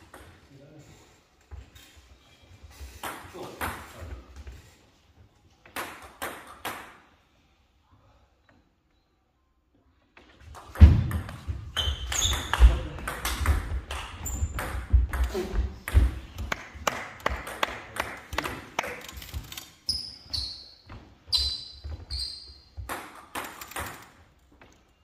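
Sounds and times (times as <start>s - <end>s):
ball bouncing: 10.2s - 19.4s, 22.8s - 24.8s.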